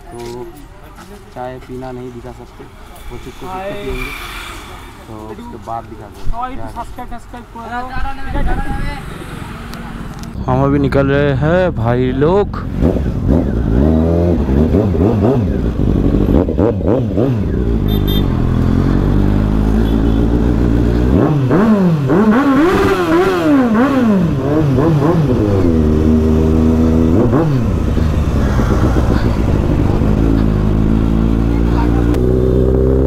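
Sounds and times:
motorcycle engine accelerating: 12.7s - 33.0s.

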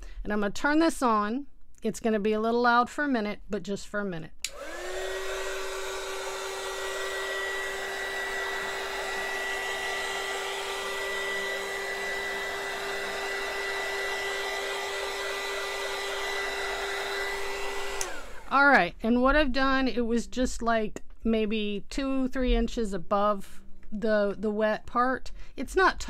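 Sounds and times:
heat gun fan whirring: 4.4s - 18.7s.

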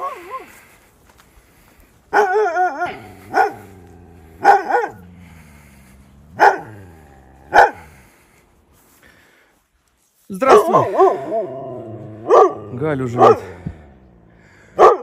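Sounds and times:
dog barking: 2.1s - 5.4s, 6.3s - 7.9s, 10.5s - 11.5s, 12.2s - 13.6s, 14.8s - 15.0s
dog howling: 2.2s - 7.9s.

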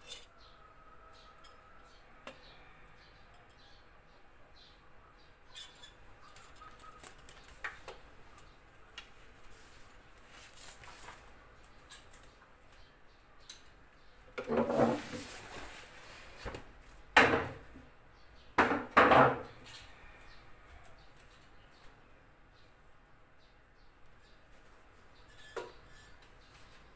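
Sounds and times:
tongs scraping and clattering: 0.0s - 0.4s, 5.5s - 7.6s, 25.2s - 26.3s.

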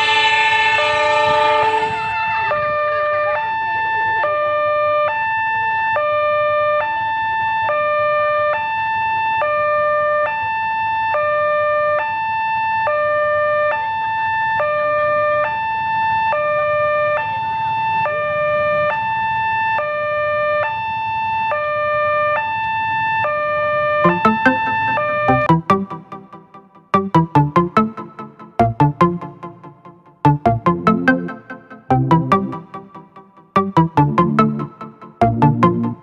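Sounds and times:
two-tone crossing alarm: 0.0s - 6.8s, 21.6s - 36.0s.

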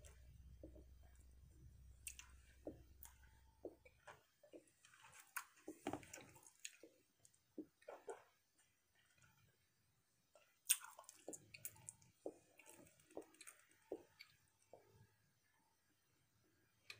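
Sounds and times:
mouth chewing bubble gum: 10.6s - 14.5s.

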